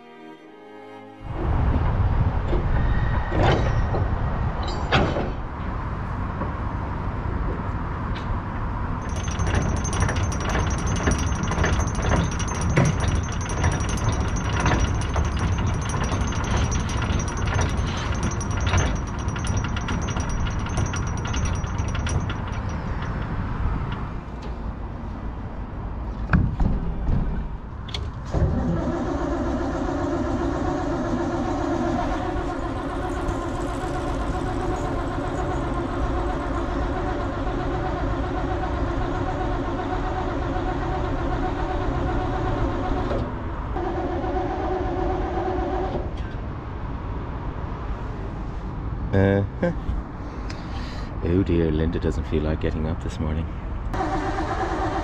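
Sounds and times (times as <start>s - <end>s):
broad rumbling noise: 1.2s - 8.1s
boat engine turning over: 9.0s - 24.3s, 28.3s - 43.0s, 54.0s - 55.0s
clicks and knocks: 9.0s - 24.6s.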